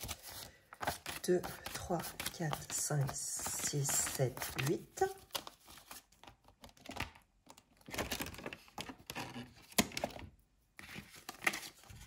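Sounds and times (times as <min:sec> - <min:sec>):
paper banknotes rustling: 0:00.0 - 0:06.9.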